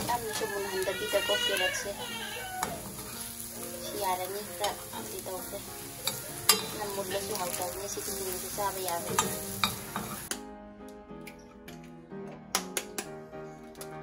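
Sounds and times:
carrots sizzling in oil: 0:00.0 - 0:10.3
metal spoon scraping a pan: 0:05.9 - 0:10.3.

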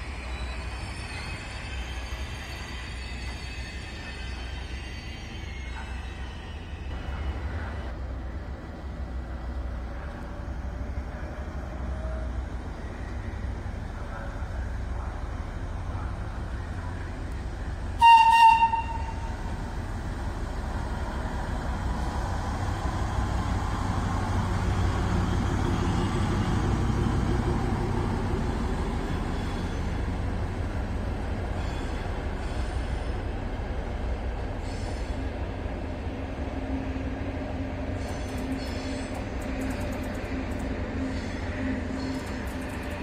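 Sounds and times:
locomotive horn blast: 0:18.0 - 0:19.4.

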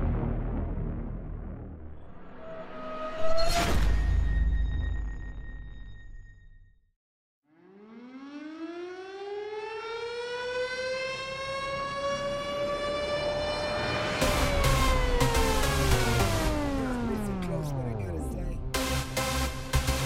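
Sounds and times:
heavy electronic beat with drums: 0:14.2 - 0:20.0.

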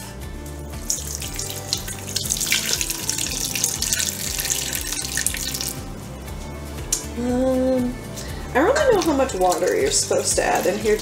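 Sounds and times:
water pouring into metal bowl: 0:00.8 - 0:05.9, 0:08.8 - 0:11.0.

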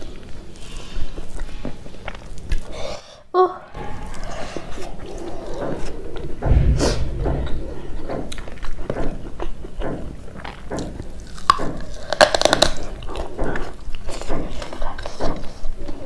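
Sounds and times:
chewing and wet mouth sounds: 0:00.0 - 0:02.8
dull low thump: 0:06.4 - 0:08.7.

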